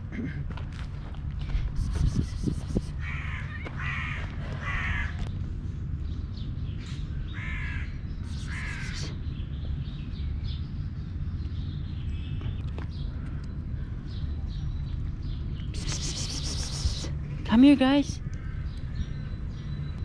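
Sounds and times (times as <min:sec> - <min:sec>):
crow cawing: 0:03.0 - 0:05.2, 0:07.4 - 0:07.9, 0:08.5 - 0:09.0.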